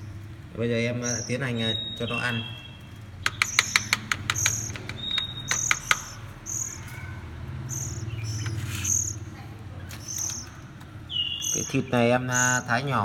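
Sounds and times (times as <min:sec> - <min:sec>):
nestlings begging calls: 0:00.0 - 0:13.0
sharp clicks: 0:03.2 - 0:06.4.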